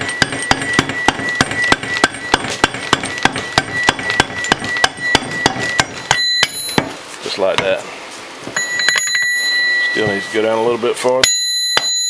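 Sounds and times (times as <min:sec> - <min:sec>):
hammer tapping on metal: 0:00.0 - 0:07.0.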